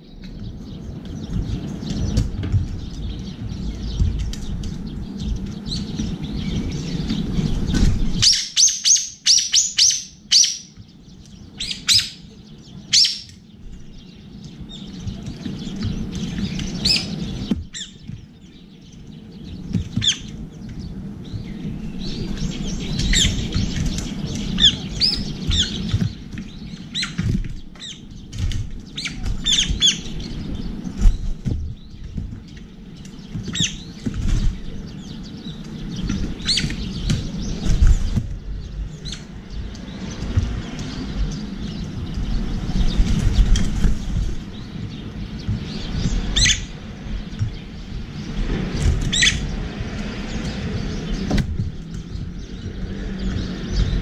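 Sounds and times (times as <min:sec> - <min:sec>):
low rumble: 0:00.0 - 0:08.2
bird chirps: 0:00.0 - 0:54.0.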